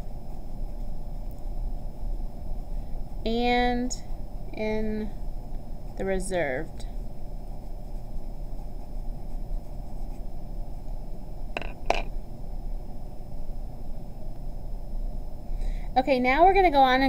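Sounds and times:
room hum and hiss: 0.0s - 17.0s
knocks of pencil on desk: 11.6s - 12.1s.

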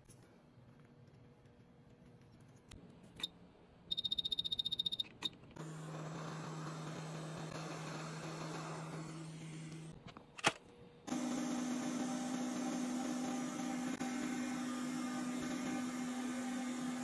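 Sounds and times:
short high beeps: 3.9s - 5.1s.

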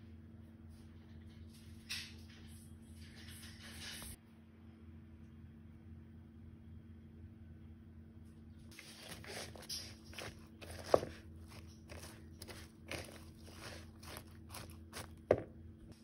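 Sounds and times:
spatula stirring coleslaw in a bowl: 8.7s - 15.5s.

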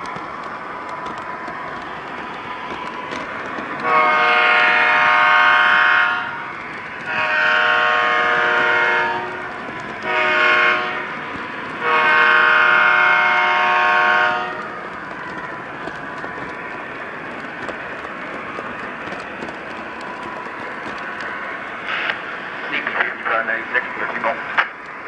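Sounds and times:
model train running on track: 0.0s - 25.0s
model locomotive horn blasts: 3.8s - 6.4s, 7.1s - 9.4s, 10.0s - 11.2s, 11.8s - 14.6s.

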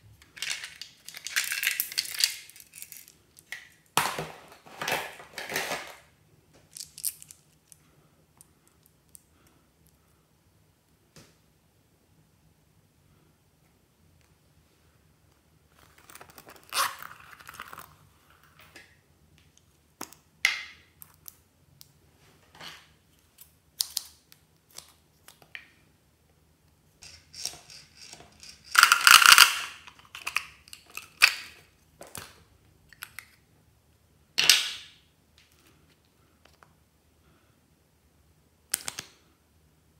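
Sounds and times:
plastic toys clicking: 27.0s - 31.4s.

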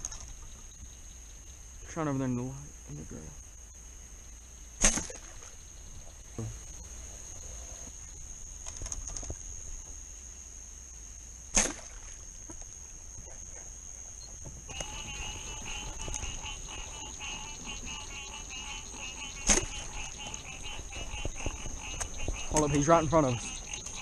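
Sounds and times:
night insects chorus: 0.0s - 24.0s
bow shots: 4.8s - 5.5s, 11.5s - 12.0s, 19.4s - 19.9s.

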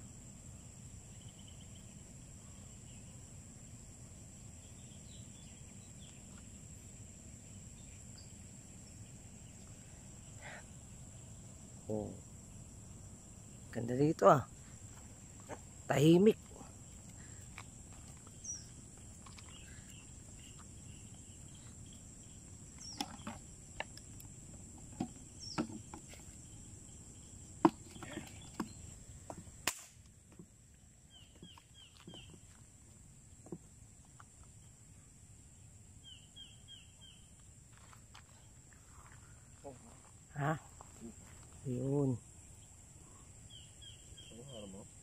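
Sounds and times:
high-pitched insect drone: 0.0s - 29.5s
bird chirps: 18.2s - 23.4s, 31.1s - 32.4s.

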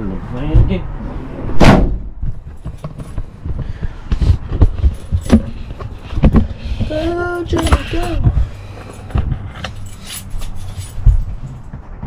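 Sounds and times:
rattling and clicking: 2.4s - 12.0s.

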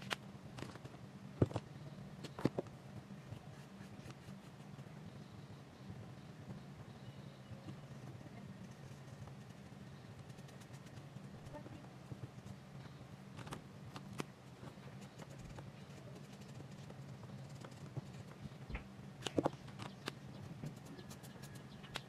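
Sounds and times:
steady low hum: 0.0s - 22.0s
marker tapping and scratching paper: 3.4s - 4.9s, 7.6s - 12.6s, 13.4s - 18.5s, 19.2s - 22.0s.

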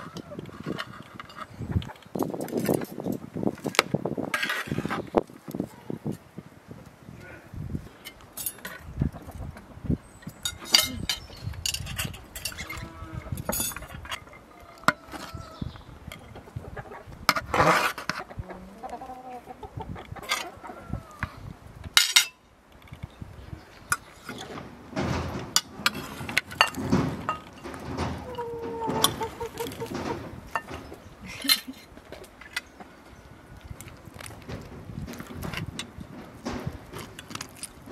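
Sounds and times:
chickens clucking: 0.0s - 2.9s, 8.8s - 11.5s, 12.1s - 21.5s, 23.5s - 33.3s
spoons scraping ceramic plates: 10.4s - 15.4s, 25.6s - 31.8s.

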